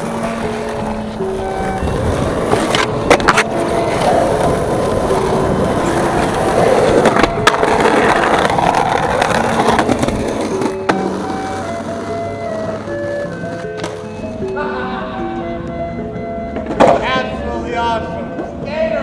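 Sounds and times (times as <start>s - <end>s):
skateboard slapping down: 0.0s - 14.0s, 16.6s - 17.0s
skateboard clacking on curb: 0.0s - 14.6s, 15.4s - 17.4s
skateboard grinding on curb: 0.0s - 14.6s
skateboard wheels rolling on asphalt: 0.0s - 14.6s.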